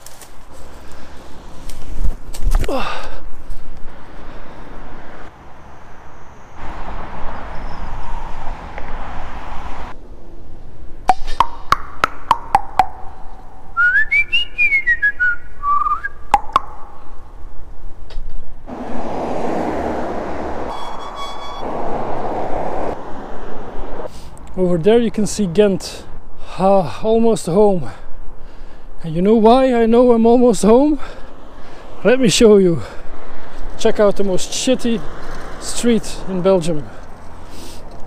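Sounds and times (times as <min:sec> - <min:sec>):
rushing wind: 0:00.0 - 0:11.8, 0:12.5 - 0:29.4, 0:30.4 - 0:38.0
highway traffic noise: 0:00.0 - 0:38.0
whistled tune: 0:13.8 - 0:16.2, 0:20.7 - 0:21.6.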